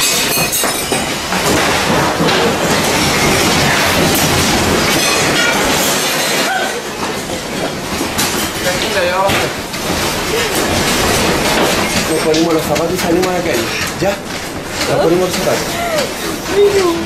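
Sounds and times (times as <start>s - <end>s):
house rattling and clattering: 0.0s - 17.0s
earthquake rumble: 1.2s - 14.8s.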